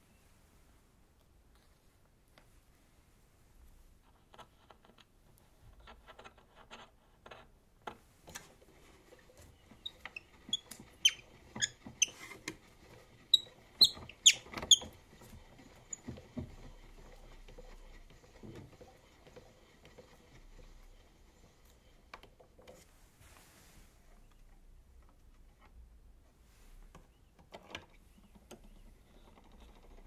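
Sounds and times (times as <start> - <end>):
high metallic squeaks and clicks: 9.5 - 16.2.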